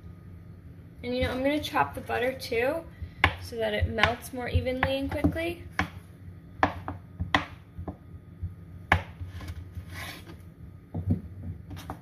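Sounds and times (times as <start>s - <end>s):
knife chopping on wooden board: 6.6s - 8.0s, 8.9s - 10.3s.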